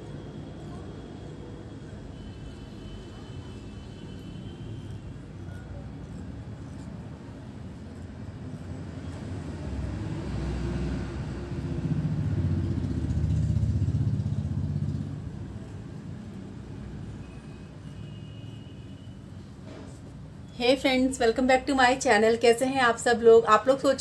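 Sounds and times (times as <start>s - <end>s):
passing vehicle engine rumble: 5.0s - 18.0s.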